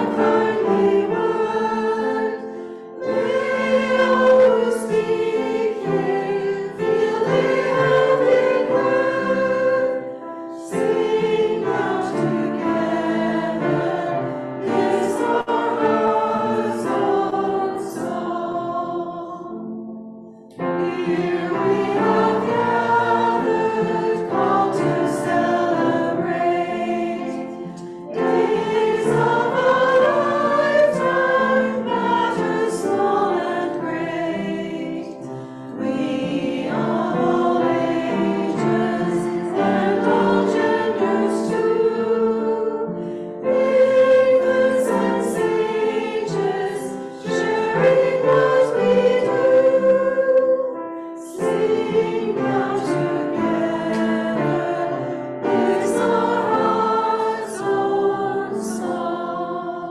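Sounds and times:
congregation singing a hymn: 0.0 - 59.9.

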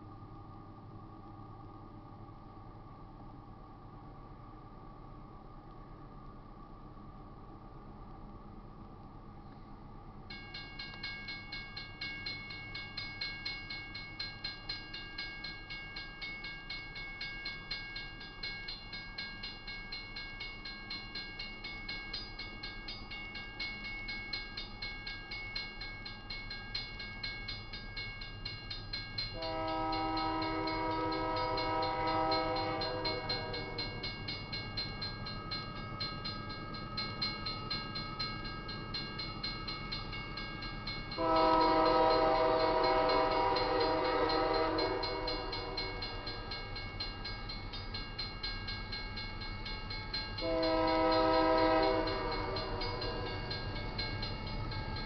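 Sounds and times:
crossing bell ringing fast: 10.3 - 55.0
locomotive air horn blasts: 29.4 - 33.8, 41.2 - 46.1, 50.4 - 53.4.

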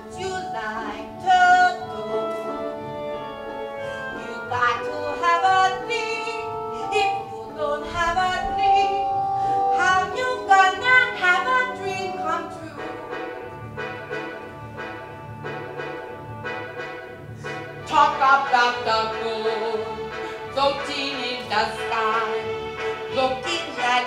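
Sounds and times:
woman singing show tune: 0.0 - 3.0, 3.8 - 13.5, 17.8 - 24.0
instrumental accompaniment: 0.0 - 24.0.

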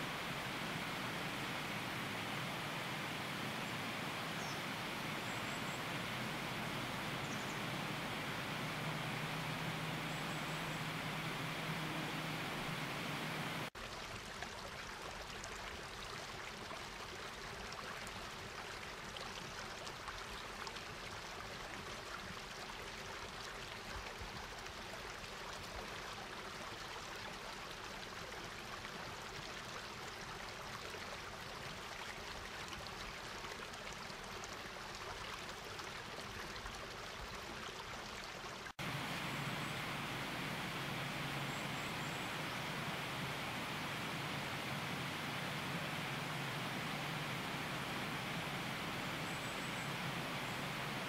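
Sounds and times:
river water rushing over rapids: 0.0 - 13.8, 38.8 - 51.0.

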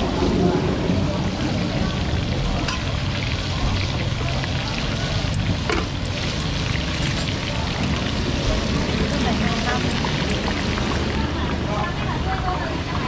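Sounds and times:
hot oil sizzling: 1.2 - 12.0.

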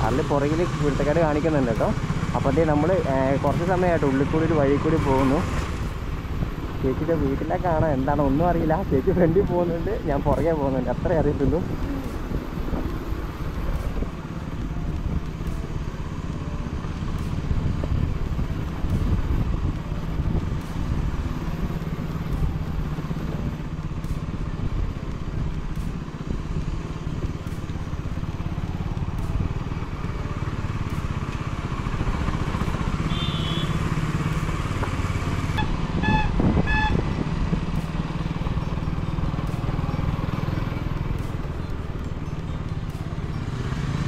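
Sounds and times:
motorcycle engine running: 0.0 - 44.0
wind and road noise: 0.0 - 44.0
horn beeps: 33.0 - 33.9, 35.6 - 37.1.

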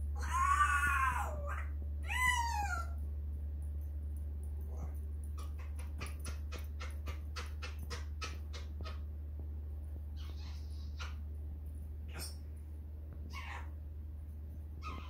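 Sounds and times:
parrot clicking calls: 4.7 - 9.1, 10.2 - 11.3.

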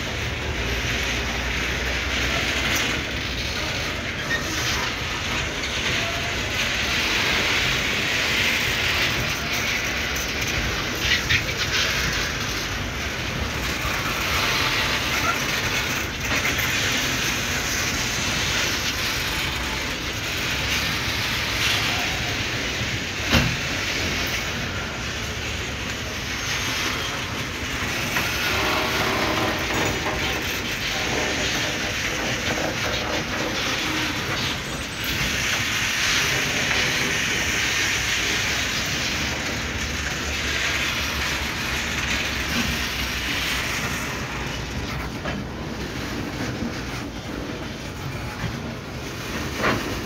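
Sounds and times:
train wheels rolling on rails: 0.0 - 50.0.

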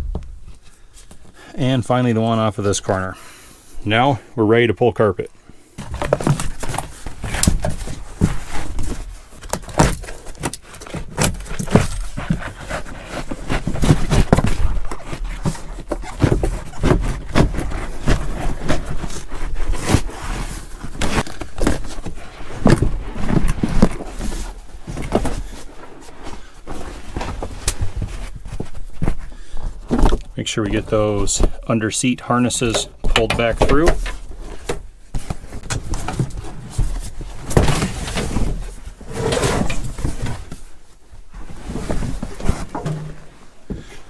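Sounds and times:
knocks and bumps: 0.0 - 0.5, 42.1 - 44.0
carpet scraping and rustling: 5.8 - 44.0.

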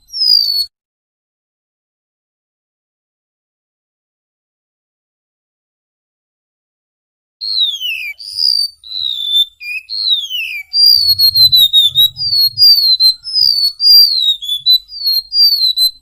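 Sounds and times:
bird singing down-slurred whistles: 7.4 - 16.0.

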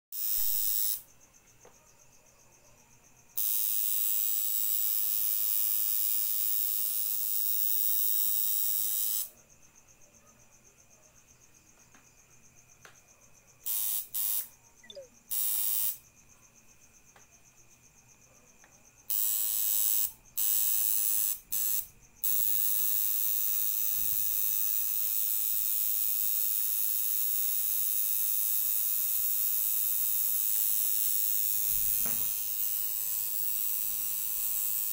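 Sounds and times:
electric tattoo machine buzzing: 0.2 - 1.0, 3.4 - 9.3, 13.7 - 14.5, 15.3 - 16.0, 19.1 - 34.9.

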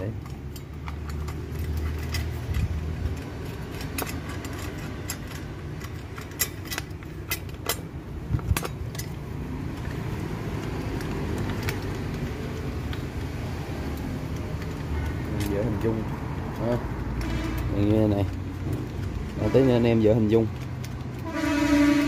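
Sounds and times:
light metallic clicks and clinks: 0.0 - 17.3.

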